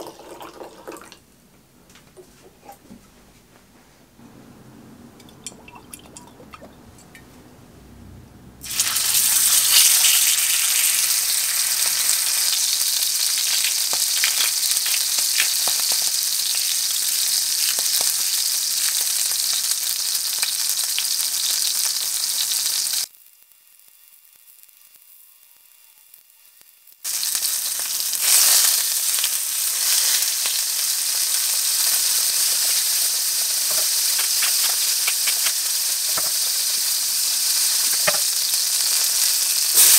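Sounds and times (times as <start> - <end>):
steak sizzling in frying pan: 8.6 - 25.1, 26.7 - 39.9.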